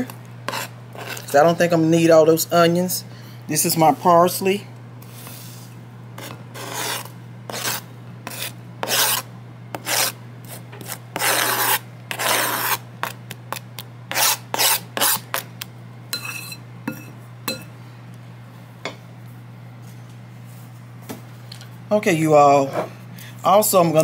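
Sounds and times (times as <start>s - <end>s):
rasping scraping strokes: 0.5s - 1.4s, 6.2s - 12.8s, 14.1s - 15.4s.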